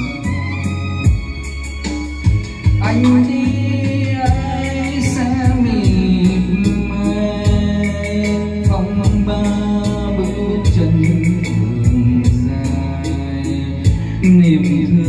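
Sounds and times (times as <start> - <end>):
backing track with drumbeat: 0.0 - 15.0
man singing into microphone: 2.6 - 15.0.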